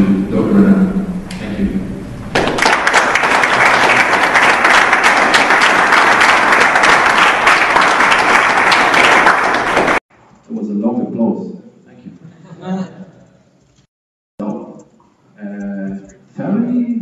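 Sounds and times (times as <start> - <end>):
audience applauding: 2.3 - 10.0.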